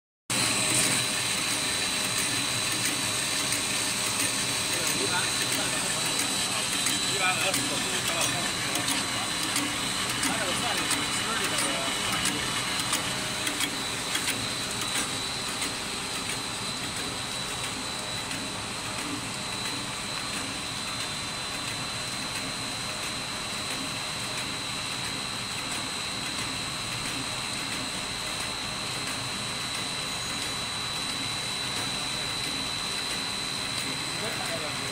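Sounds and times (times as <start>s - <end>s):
constant high whine: 0.3s - 34.9s
extrusion machine running: 0.3s - 34.9s
mechanical clicks: 2.2s - 11.6s.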